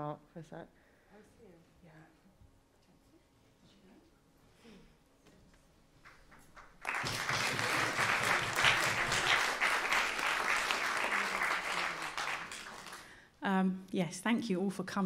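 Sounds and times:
audience applauding: 6.1 - 13.2.

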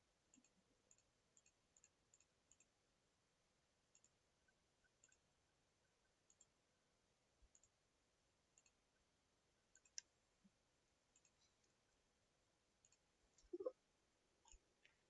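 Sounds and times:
computer mouse clicks: 0.3 - 2.7, 3.9 - 4.2, 4.8 - 5.3, 6.3 - 6.6, 7.5 - 7.8, 8.6 - 8.8, 9.7 - 10.1, 11.1 - 11.8, 12.8 - 13.7.

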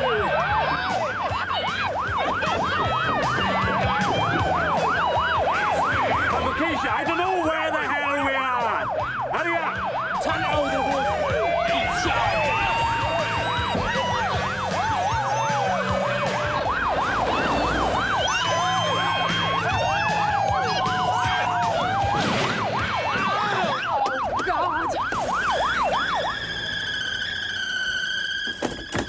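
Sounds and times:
ambulance siren fast yelp: 0.0 - 29.0
slower wailing siren: 0.0 - 29.0.

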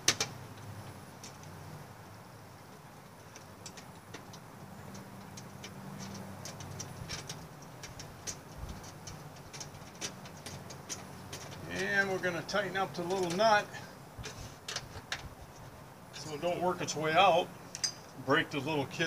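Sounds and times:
metal bolt ticking and clicking: 3.2 - 11.6.

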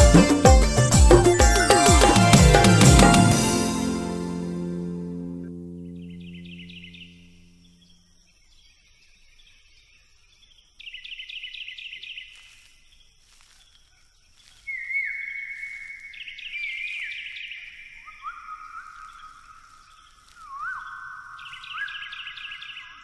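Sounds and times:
held music chord: 0.0 - 7.8
drawn-out low bird calls: 14.4 - 23.0.

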